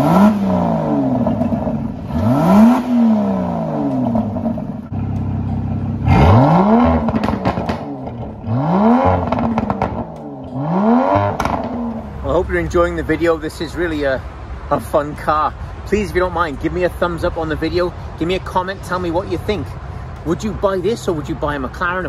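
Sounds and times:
car engine revving: 0.0 - 12.7
exhaust crackles: 0.0 - 16.4.

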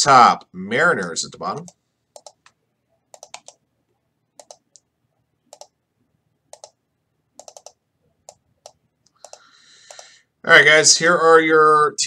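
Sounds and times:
mouse and keyboard clicks: 2.2 - 3.6, 4.4 - 4.9, 5.5 - 5.8, 6.5 - 6.8, 7.4 - 10.1.

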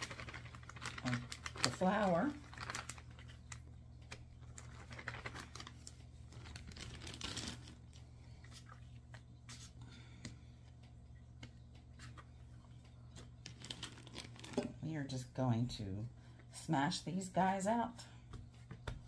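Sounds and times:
plastic bag crinkling: 0.0 - 8.9, 13.4 - 14.8
steady low hum: 0.0 - 19.0
dough taps and rustles: 18.3 - 19.0.

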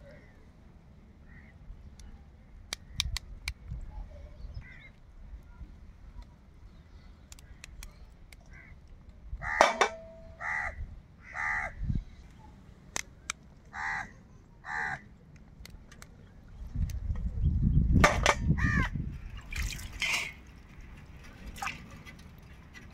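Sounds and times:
faint sharp clicks: 2.7 - 3.8, 7.3 - 9.2, 15.3 - 16.2
crow cawing: 9.4 - 9.7, 10.4 - 11.8, 13.7 - 15.0, 18.6 - 18.9.

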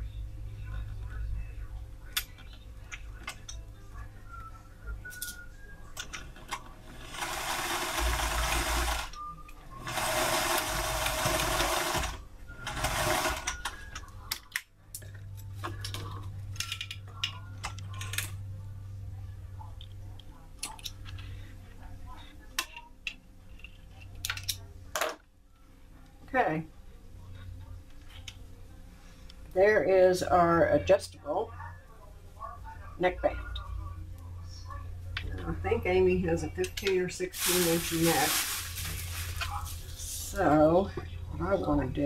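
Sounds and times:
low steady hum: 0.0 - 10.2, 10.8 - 42.0
sewing machine stitching: 9.8 - 13.6.

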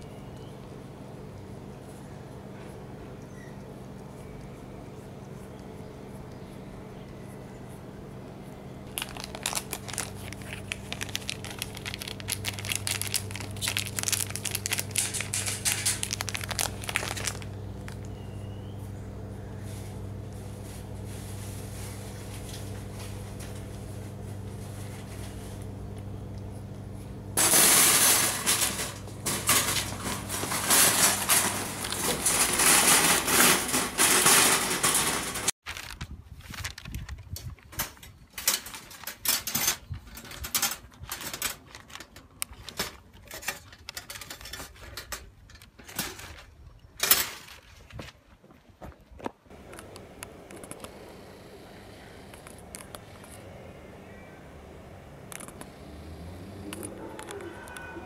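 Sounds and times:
steady low hum: 0.0 - 35.6, 49.5 - 58.0.

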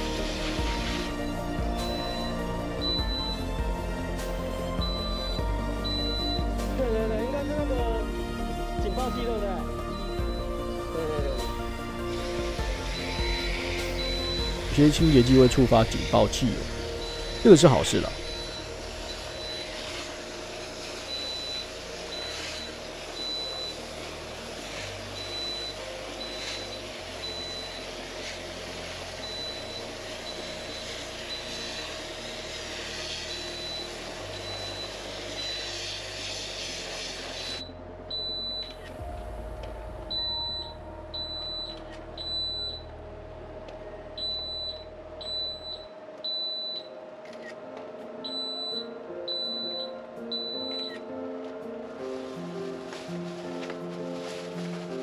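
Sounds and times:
smoke alarm beeping: 0.0 - 24.5, 25.1 - 36.5, 37.3 - 39.0, 40.1 - 42.9, 44.2 - 47.0, 48.2 - 51.0
spray wand hissing: 0.0 - 37.7, 52.1 - 55.0.

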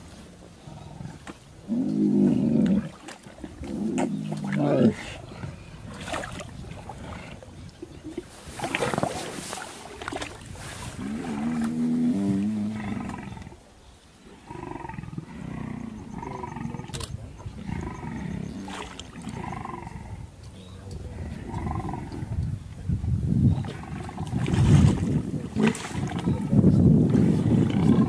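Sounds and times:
lions growling: 0.3 - 7.6, 10.9 - 13.7, 14.3 - 22.5, 23.5 - 28.0
splashing in shallow water: 2.4 - 13.3, 16.7 - 19.5, 23.5 - 28.0.

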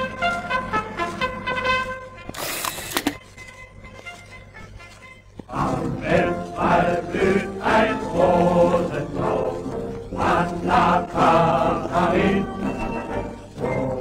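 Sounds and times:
choir singing: 5.5 - 14.0.

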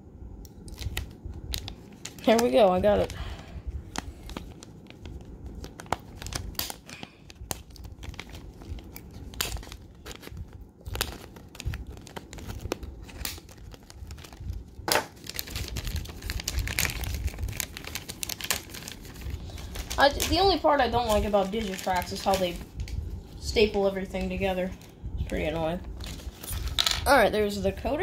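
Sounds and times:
paper rustling: 3.9 - 23.0, 23.6 - 27.0.

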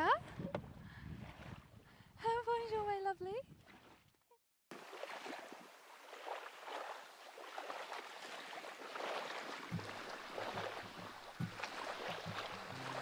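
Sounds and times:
small waves lapping on shore: 3.5 - 4.1, 4.7 - 13.0
low music notes: 11.4 - 13.0.

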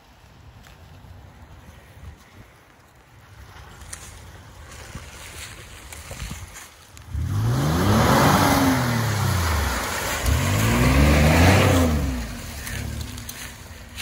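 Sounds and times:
tyres churning mud: 4.3 - 14.0
truck engine revving: 7.1 - 13.6.

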